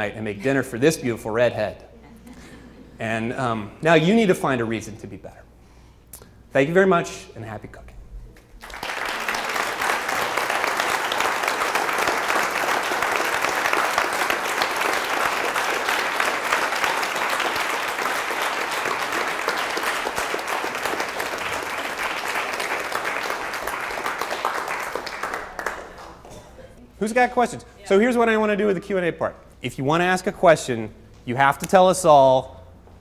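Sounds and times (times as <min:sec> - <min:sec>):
audience applauding: 0:08.6 - 0:26.3.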